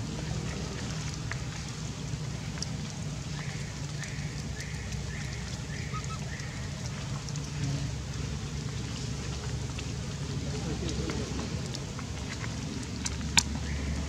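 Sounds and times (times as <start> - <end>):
outdoor background noise with hum: 0.0 - 14.0
animal call: 5.2 - 6.6.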